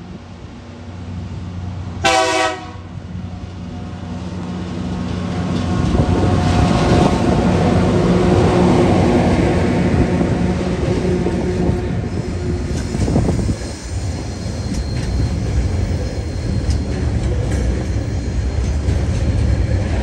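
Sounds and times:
locomotive engines droning: 0.0s - 20.0s
locomotive horn blast: 2.0s - 3.0s.

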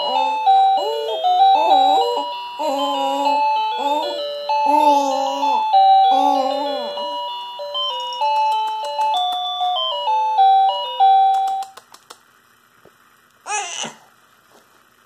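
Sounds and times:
toy piano beeping tune: 0.0s - 11.7s.

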